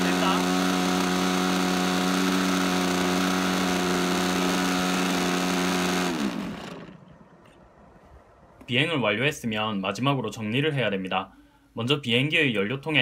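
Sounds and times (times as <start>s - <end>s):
model airplane engine running: 0.0s - 7.1s
propeller spinning down: 0.0s - 8.0s.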